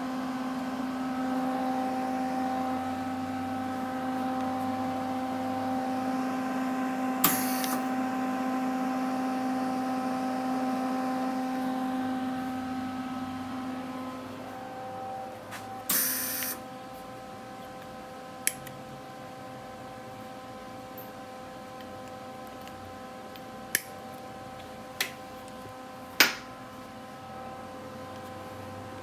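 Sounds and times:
steady hum: 0:00.0 - 0:29.0
welding gun hiss: 0:07.2 - 0:07.9, 0:15.9 - 0:16.6.

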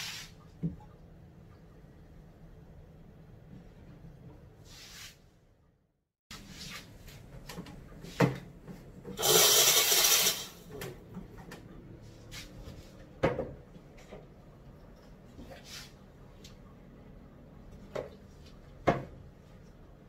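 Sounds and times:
steam hiss: 0:09.2 - 0:10.5.

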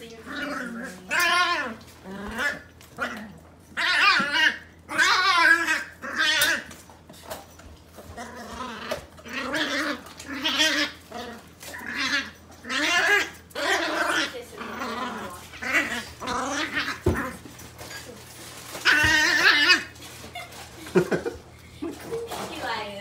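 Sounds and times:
puppy growl-yowling: 0:00.1 - 0:06.9, 0:07.9 - 0:21.4.

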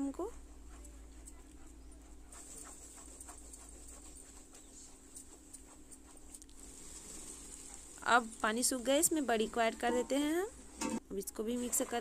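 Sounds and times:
steady low hum: 0:00.0 - 0:11.8
masala sizzling faintly: 0:00.0 - 0:12.0
small crackles and scrapes: 0:02.3 - 0:10.2.

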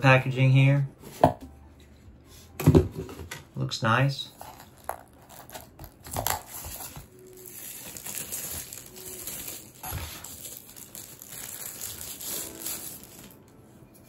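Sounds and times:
plastic wrapping crinkling: 0:04.3 - 0:13.7.

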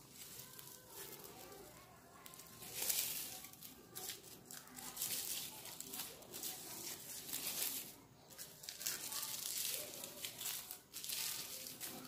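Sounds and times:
plastic strands rustling and crinkling: 0:00.0 - 0:12.0.

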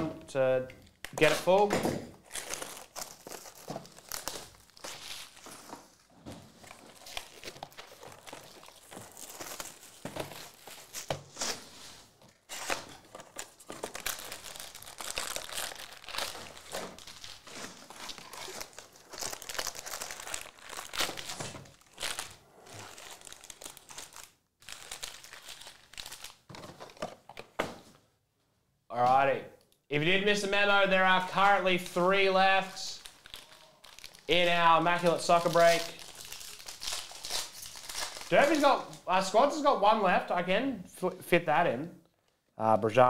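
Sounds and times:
foil packs crinkling: 0:02.2 - 0:27.6, 0:32.5 - 0:39.4.

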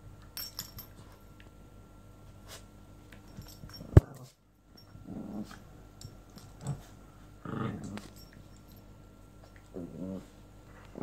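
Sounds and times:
dogs growling: 0:05.0 - 0:05.7, 0:06.6 - 0:08.2, 0:09.7 - 0:11.0.

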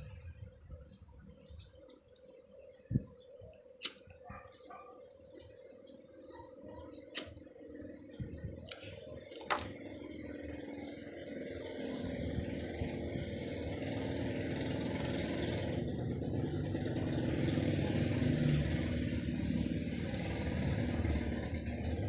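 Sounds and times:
vehicle engine running: 0:05.3 - 0:22.0.

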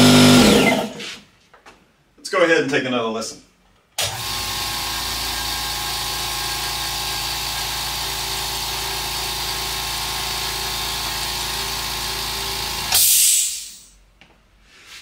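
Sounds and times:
air compressor humming: 0:00.0 - 0:01.1, 0:04.0 - 0:14.0
hiss of air venting: 0:13.0 - 0:14.0.

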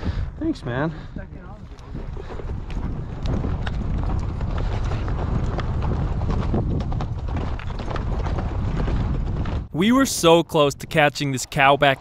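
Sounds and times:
horse hooves clip-clopping: 0:01.4 - 0:09.7.

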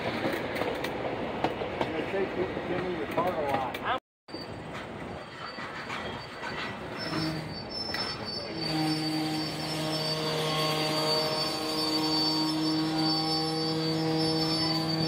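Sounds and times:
steel wheel squeal: 0:04.3 - 0:15.0.

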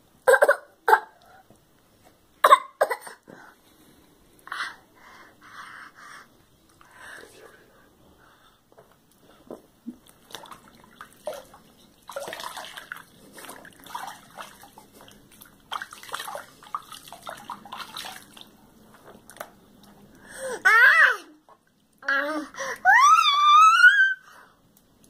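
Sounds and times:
water splashing in baby bathtub: 0:09.9 - 0:20.0.

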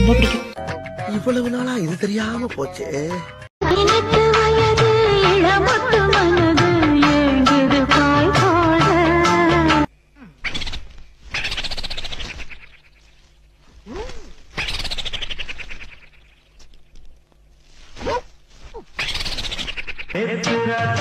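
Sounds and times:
cloth sheet swishing and slapping: 0:17.6 - 0:19.5.

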